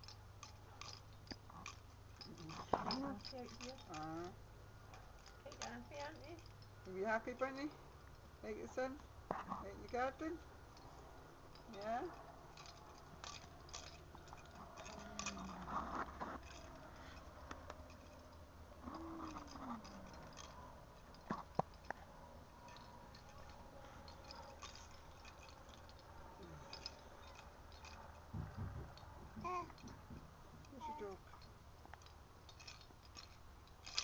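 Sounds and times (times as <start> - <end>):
soft vocal sounds: 13.8 - 17.3, 18.8 - 20.7, 26.3 - 27.4.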